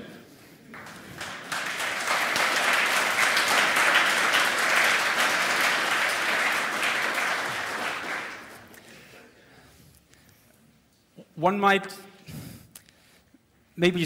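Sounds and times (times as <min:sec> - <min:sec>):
audience applause: 0:00.6 - 0:09.1.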